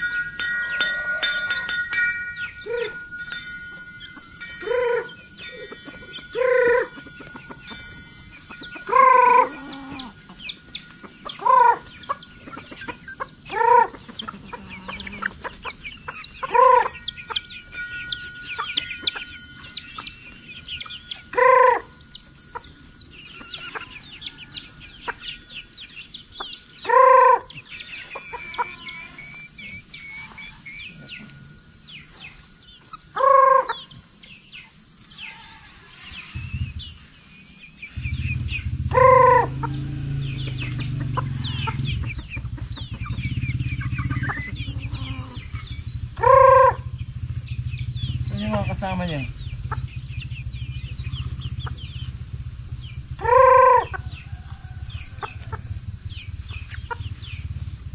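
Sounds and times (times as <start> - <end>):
hens clucking and peeping: 0.0 - 34.0, 37.8 - 57.9
high-pitched drone: 0.0 - 57.9
man calling chickens: 11.4 - 11.9, 48.3 - 49.5.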